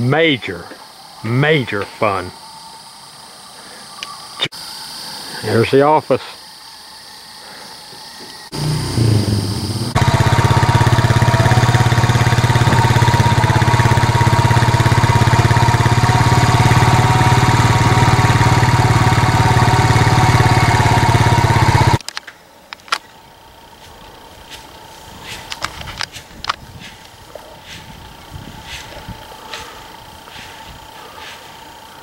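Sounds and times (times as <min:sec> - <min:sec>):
quad bike engine running: 0:08.5 - 0:22.0, 0:23.3 - 0:32.0.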